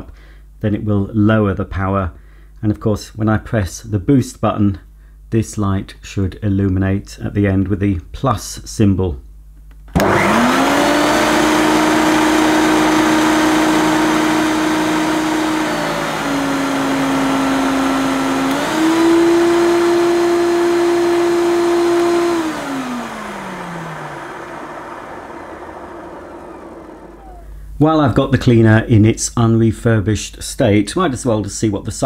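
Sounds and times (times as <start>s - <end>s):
vacuum cleaner motor whining: 10.0s - 27.8s.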